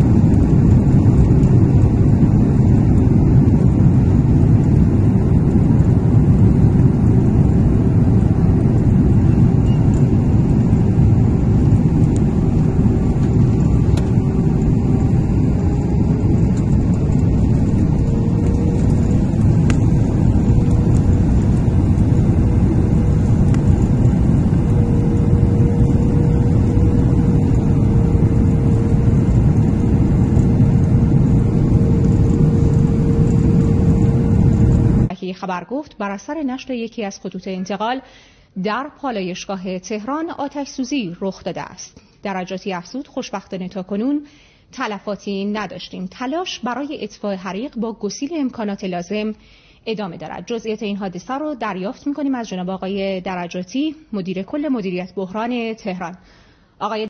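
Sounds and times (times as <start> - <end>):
jet airliner cabin noise: 0.0 - 35.1
faint hum: 0.0 - 57.0.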